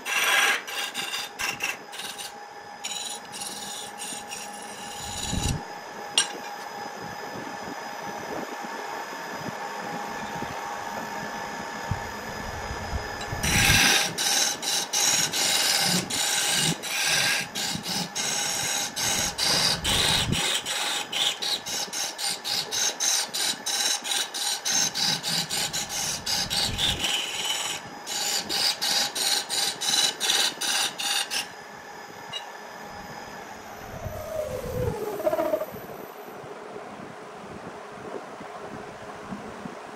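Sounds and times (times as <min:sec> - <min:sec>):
wood lathe humming: 0:00.0 - 0:05.6, 0:13.4 - 0:31.4.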